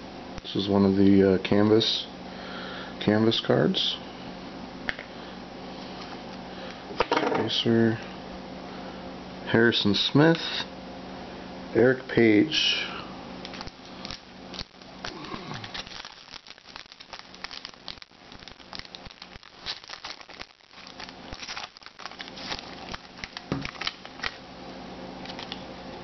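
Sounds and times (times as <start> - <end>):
foil card pack crinkling: 13.4 - 24.4, 25.2 - 25.6
cards being handled: 18.4 - 24.4, 25.2 - 25.6.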